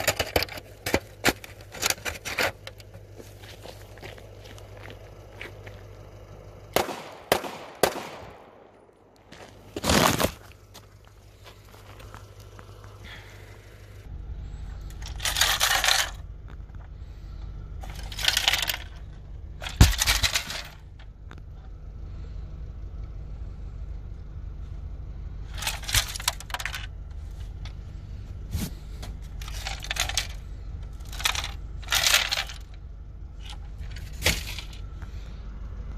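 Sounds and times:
broken bits rattling in plastic case: 0:14.9 - 0:16.3, 0:17.8 - 0:20.9, 0:25.5 - 0:27.0, 0:29.4 - 0:32.8.

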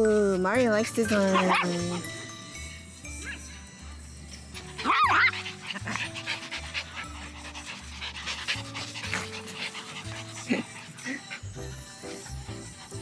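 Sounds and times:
dog panting: 0:00.4 - 0:13.0
dog yip: 0:01.2 - 0:02.1, 0:04.8 - 0:05.4
dog whine: 0:04.6 - 0:07.4.

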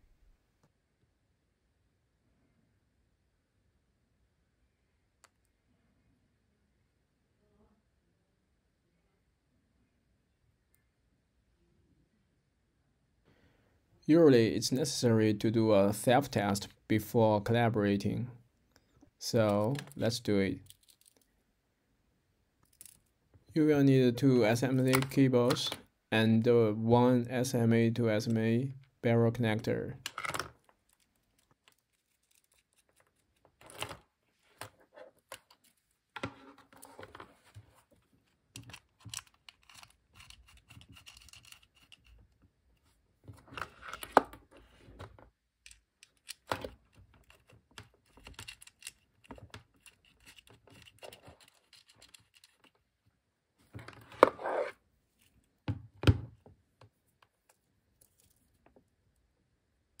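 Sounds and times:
cable handling clicks and taps: 0:18.7 - 0:21.3, 0:24.8 - 0:25.9, 0:34.6 - 0:52.9.

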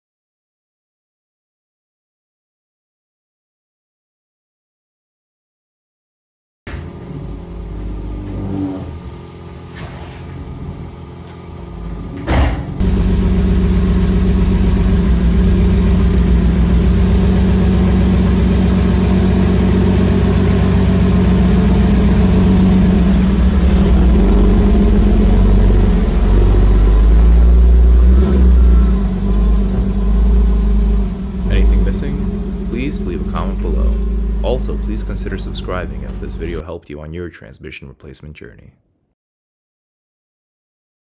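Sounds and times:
car engine starting and idling: 0:06.7 - 0:36.6
car pulling away: 0:12.8 - 0:36.6.

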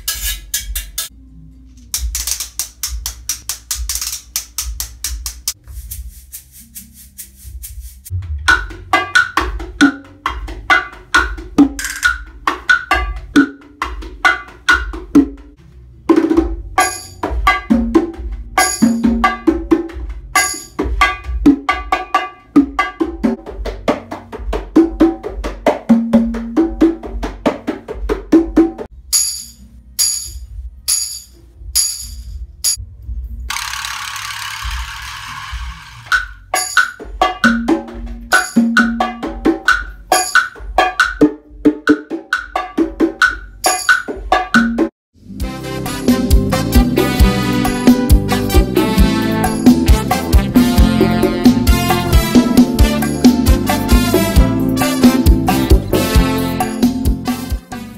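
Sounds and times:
metal shaker rhythm: 0:00.0 - 0:01.1, 0:01.8 - 0:15.6, 0:16.2 - 0:57.6
metal hand drums: 0:02.0 - 0:29.4, 0:35.6 - 0:44.9
bongos played by hand: 0:02.2 - 0:28.9, 0:34.4 - 0:57.7.

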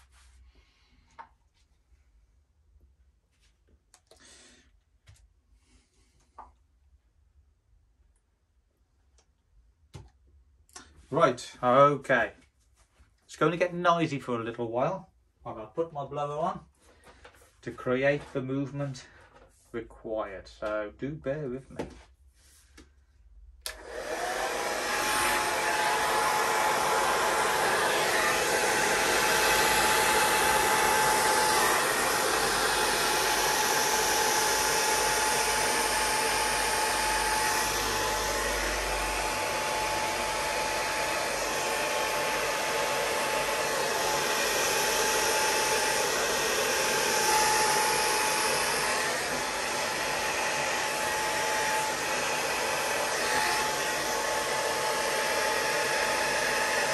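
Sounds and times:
electric blower rushing air: 0:23.7 - 0:56.9.

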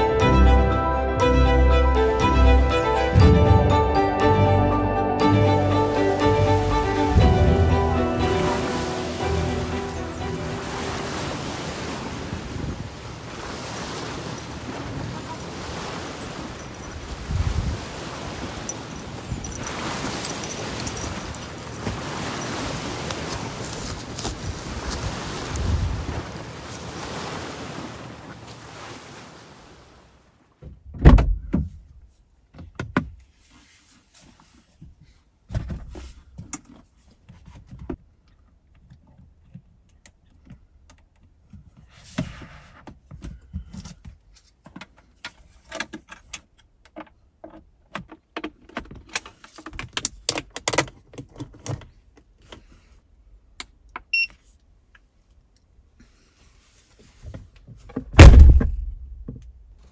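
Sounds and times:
sea surf: 0:00.0 - 0:30.3
wind: 0:00.0 - 0:59.9
loud thump: 0:03.2 - 0:03.7, 0:58.2 - 0:59.4
short high beep: 0:54.1 - 0:54.3.

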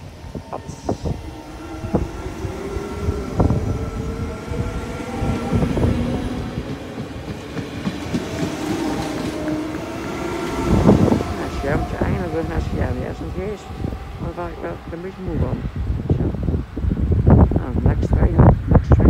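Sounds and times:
wheels clicking over rails: 0:00.0 - 0:14.2
electric train motor hum: 0:00.0 - 0:17.6.

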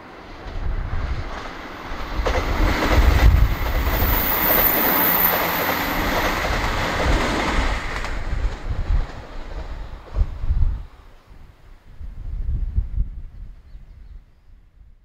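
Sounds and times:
diesel train passing: 0:00.0 - 0:10.2
wind buffeting microphone: 0:00.3 - 0:15.0.

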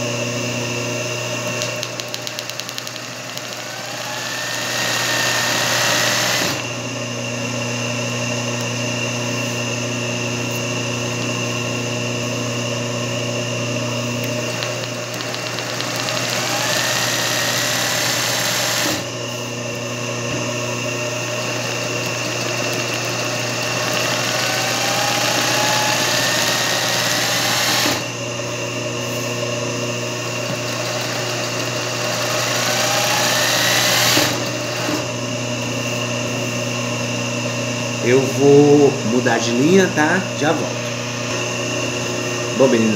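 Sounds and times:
sewing machine running: 0:01.5 - 0:06.7, 0:14.2 - 0:19.1, 0:21.0 - 0:28.1, 0:30.4 - 0:35.1.

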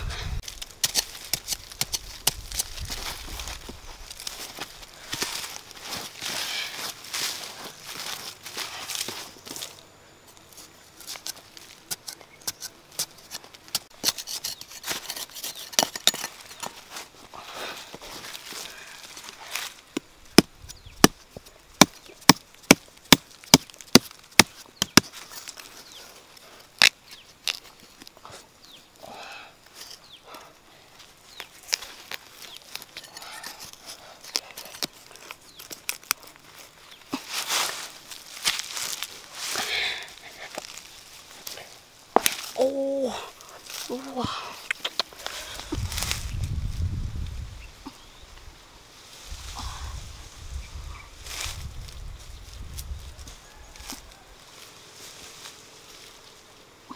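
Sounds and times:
dirt scraped by hand: 0:00.0 - 0:29.0, 0:29.6 - 0:30.2, 0:31.0 - 0:48.2
knife scraping stony soil: 0:00.0 - 0:29.0, 0:29.6 - 0:30.2, 0:31.0 - 0:46.5.

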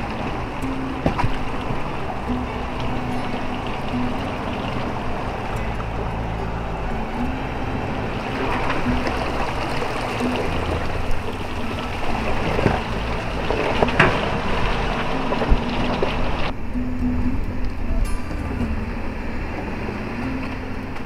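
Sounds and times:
suspension knocks and clunks: 0:00.0 - 0:16.6
truck engine and tyre noise: 0:00.0 - 0:21.0.

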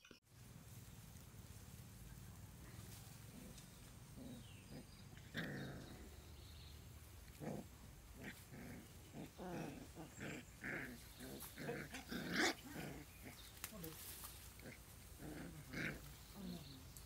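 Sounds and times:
puppies growling: 0:02.8 - 0:13.6, 0:14.4 - 0:17.0.

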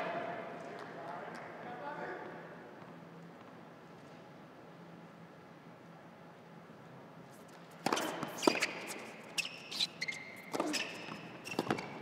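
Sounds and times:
shoes squeaking on court: 0:07.5 - 0:12.0.

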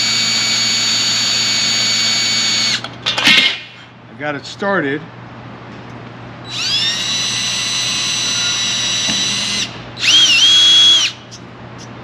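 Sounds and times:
cordless drill whining: 0:06.5 - 0:11.2.

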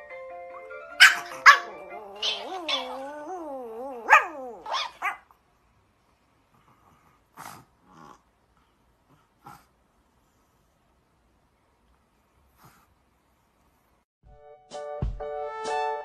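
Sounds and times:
puppy howling: 0:01.0 - 0:05.2
puppy yapping: 0:01.0 - 0:05.3.

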